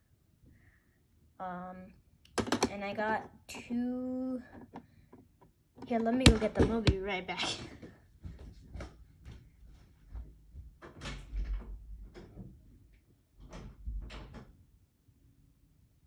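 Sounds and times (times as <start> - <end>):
knocks and thumps of person moving: 4.5 - 12.6
door opening and shutting: 10.8 - 12.6, 13.4 - 14.6.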